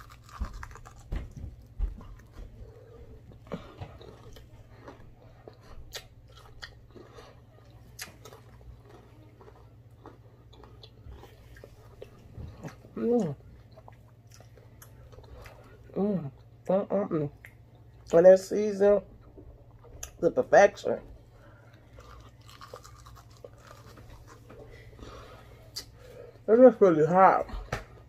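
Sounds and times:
crunchy chewing: 0.0s - 16.5s, 21.4s - 26.1s
low steady hum: 0.0s - 28.0s.

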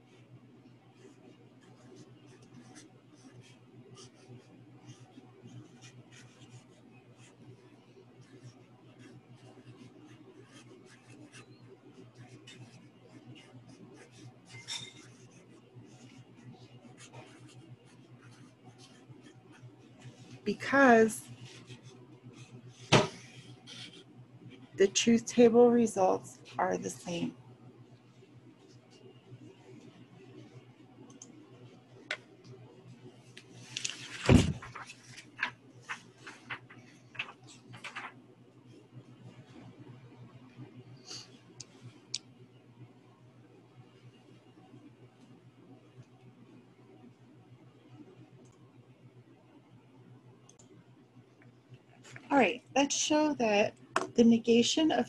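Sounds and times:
marker scratching on paper: 17.0s - 24.0s
paper thump on table: 22.9s - 23.2s, 33.9s - 35.5s
paper crinkles and taps: 33.4s - 38.2s
paper rustling: 33.6s - 38.2s.

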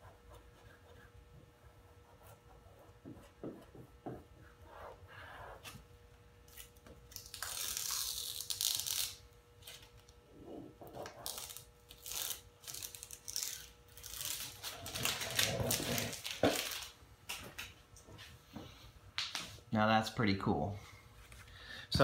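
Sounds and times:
tape and paper rustling: 6.5s - 10.1s, 11.0s - 17.7s.

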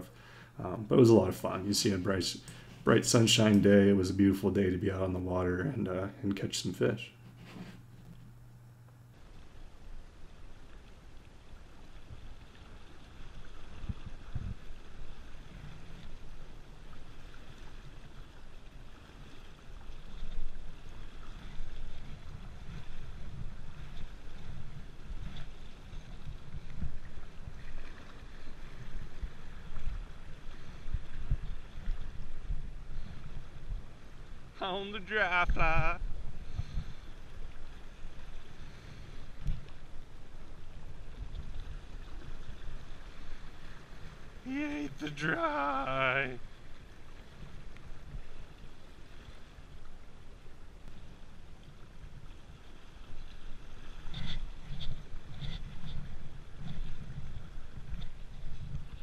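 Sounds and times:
flowing river water: 0.0s - 59.0s
wind buffeting microphone: 13.4s - 15.3s
river current rushing: 34.6s - 36.0s, 42.8s - 46.4s.

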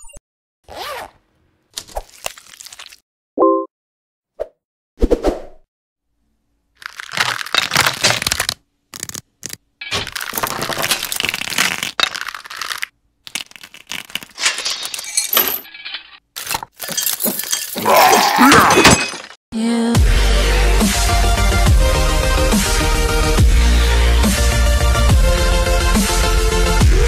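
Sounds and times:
skeleton bones cracking and clattering: 6.8s - 15.3s.

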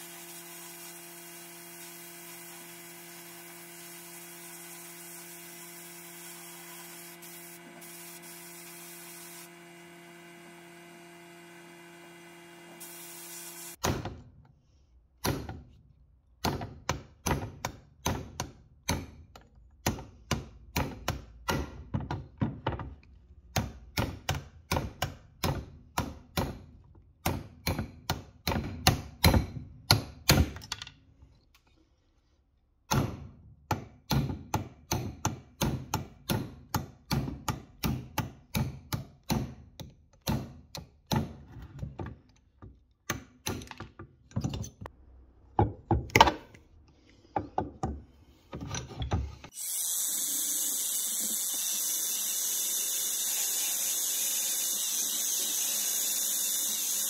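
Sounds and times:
belt sander running: 0.0s - 13.8s, 49.5s - 57.0s.

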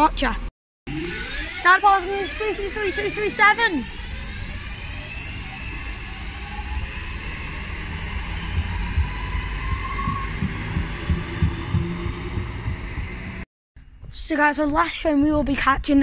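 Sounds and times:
electric train motor whine: 0.9s - 13.5s
wheels rumbling on rail: 1.8s - 13.4s
low thumps: 7.7s - 13.4s.

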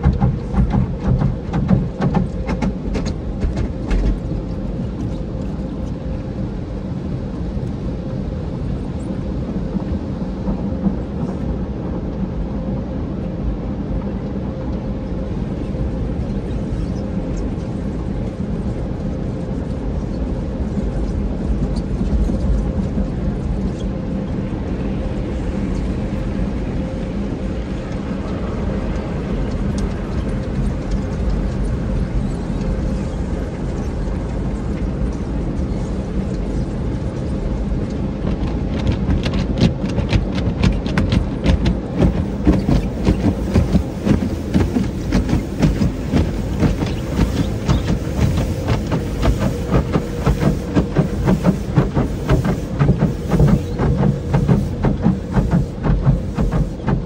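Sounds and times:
car wash equipment hum: 0.0s - 57.0s
brush strips slapping windshield: 38.2s - 57.0s
wash brushes and water spray: 38.2s - 57.0s.

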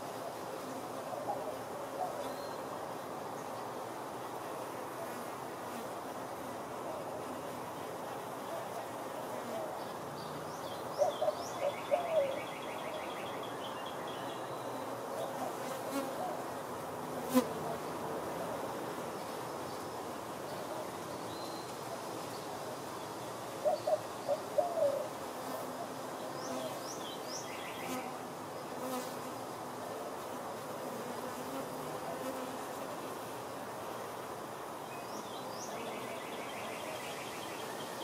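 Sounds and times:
honey bees buzzing: 23.1s - 38.0s.

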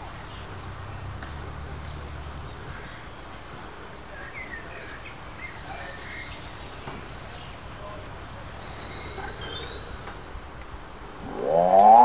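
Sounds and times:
birds chirping: 0.0s - 10.3s, 11.1s - 12.0s
background hiss: 0.0s - 12.0s
low rumble: 11.2s - 12.0s.

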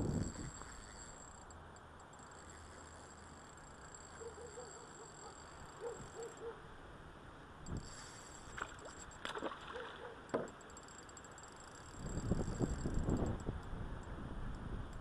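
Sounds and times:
fish splashing in water: 8.5s - 10.2s.

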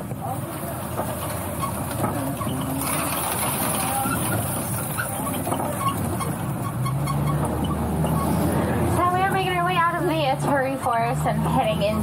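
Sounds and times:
truck engine and road rumble: 0.0s - 12.0s.

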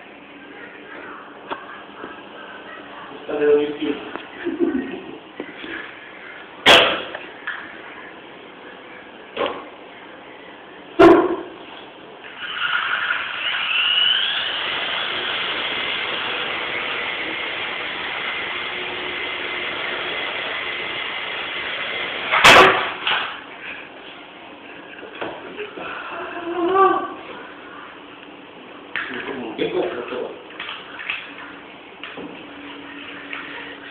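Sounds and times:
toy helicopter motor whining: 12.3s - 22.4s.

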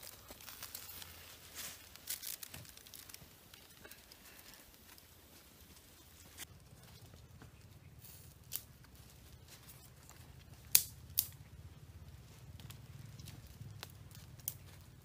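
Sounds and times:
campfire crackling: 0.0s - 15.0s
low steady rumble: 6.4s - 15.0s
fire pops: 10.5s - 11.4s.

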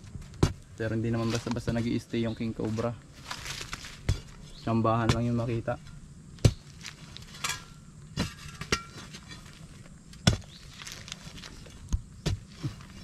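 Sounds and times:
rubble clattering: 2.6s - 13.0s
steel bar striking concrete: 7.4s - 9.4s.

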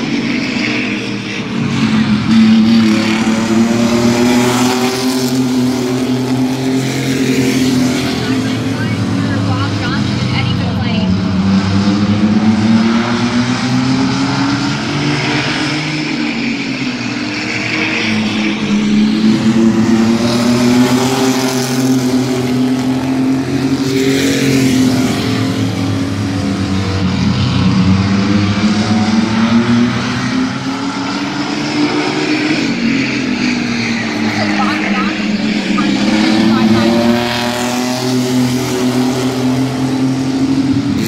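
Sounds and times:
race truck engines passing: 0.0s - 41.0s.

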